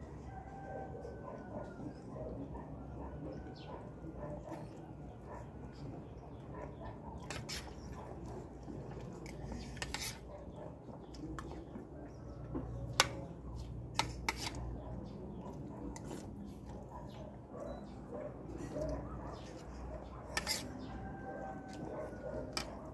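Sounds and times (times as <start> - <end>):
metal spoon scraping a plate: 7.2 - 7.9, 9.2 - 10.3, 14.0 - 14.6, 20.2 - 21.0.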